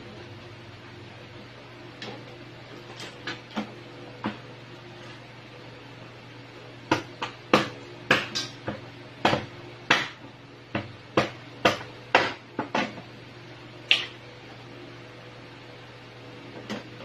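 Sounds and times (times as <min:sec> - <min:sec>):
cleaver chopping on plastic board: 0:06.9 - 0:10.2, 0:10.8 - 0:12.4.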